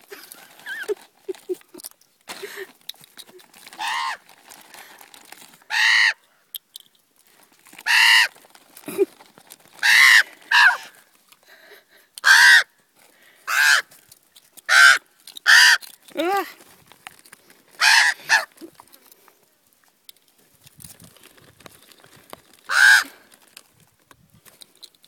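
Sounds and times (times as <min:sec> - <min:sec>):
young ravens rasping begging calls: 0:03.7 - 0:04.3, 0:05.6 - 0:06.5, 0:07.8 - 0:08.4, 0:09.8 - 0:11.1, 0:12.1 - 0:12.8, 0:13.4 - 0:16.5, 0:17.8 - 0:18.8, 0:22.6 - 0:23.4.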